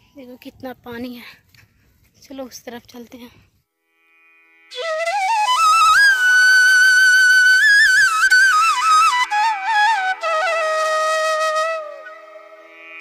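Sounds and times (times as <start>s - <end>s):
solo flute slow melody: 4.5s - 13.0s.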